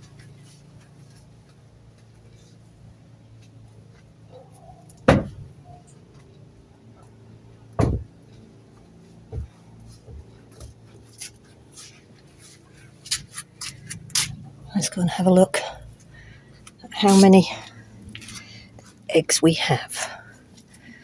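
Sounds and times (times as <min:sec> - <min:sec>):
low steady hum: 0:00.0 - 0:21.0
loud knocks: 0:05.1 - 0:05.5, 0:07.8 - 0:08.1
light clicks and scrapes: 0:08.8 - 0:14.5.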